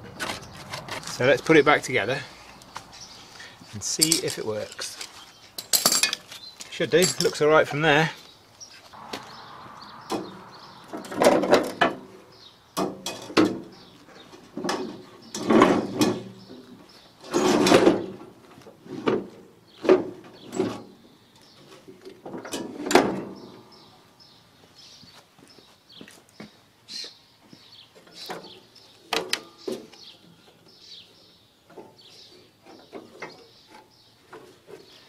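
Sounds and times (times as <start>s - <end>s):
metal clanks and scrapes: 12.8s - 16.6s, 17.2s - 18.2s, 22.2s - 23.5s.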